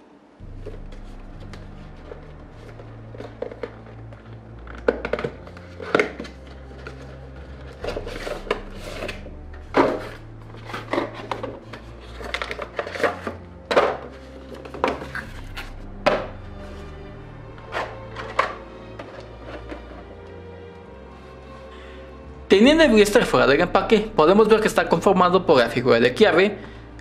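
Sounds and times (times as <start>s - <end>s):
plastic and cardboard crinkling: 0.5s - 16.8s.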